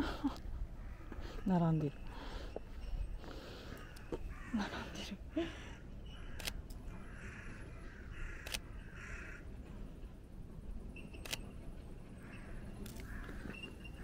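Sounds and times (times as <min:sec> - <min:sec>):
camera shutter clicking: 0:06.4 - 0:06.6, 0:08.4 - 0:08.6, 0:11.2 - 0:11.5.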